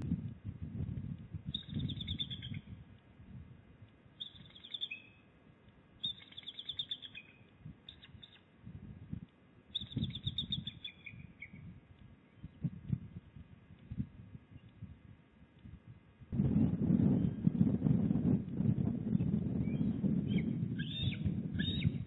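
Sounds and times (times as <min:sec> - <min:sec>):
low rumble: 0:12.5 - 0:22.0.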